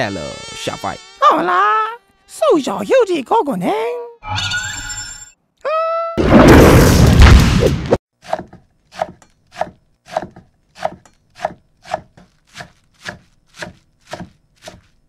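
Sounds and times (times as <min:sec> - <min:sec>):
cleaver chopping on wooden board: 0:08.2 - 0:14.9.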